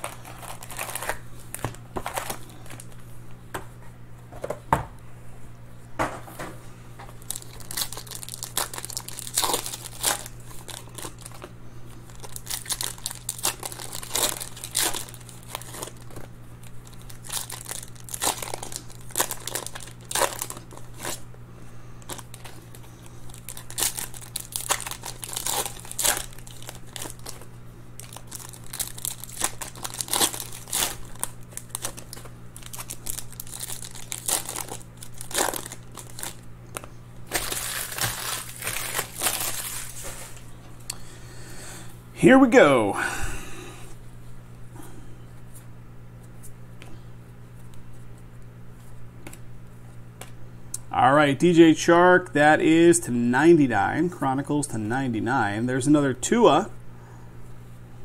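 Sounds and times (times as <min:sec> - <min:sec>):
foil wrappers crinkling and tearing: 0:00.0 - 0:03.0, 0:07.1 - 0:21.3, 0:22.0 - 0:40.5
steady low hum: 0:00.0 - 0:58.0.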